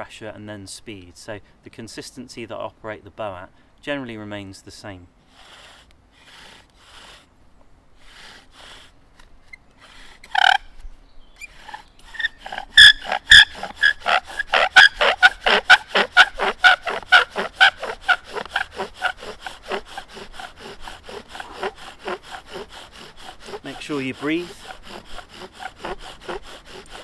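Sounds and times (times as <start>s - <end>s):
bow drill rasping squeaks: 9.4s - 27.0s.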